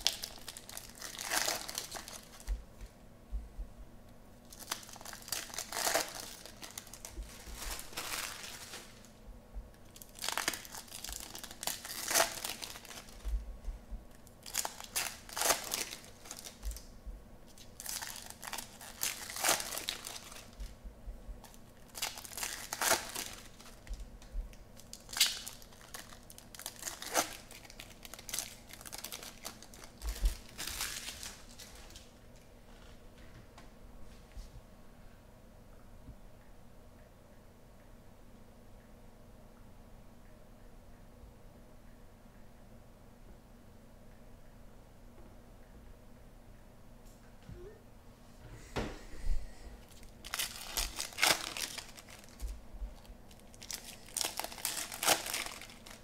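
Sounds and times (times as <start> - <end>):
foil wrappers tearing and crinkling: 0.0 - 2.5, 4.5 - 9.1, 9.9 - 13.3, 14.2 - 16.9, 17.5 - 20.6, 21.4 - 24.1, 24.8 - 32.1, 49.8 - 56.0.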